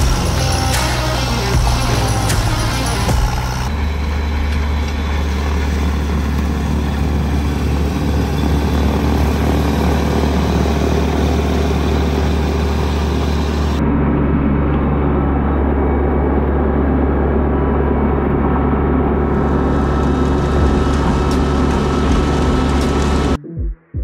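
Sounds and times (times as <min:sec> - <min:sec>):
snowblower churning snow: 0:00.0 - 0:13.8, 0:18.6 - 0:23.4
tractor diesel engine running: 0:00.0 - 0:23.4.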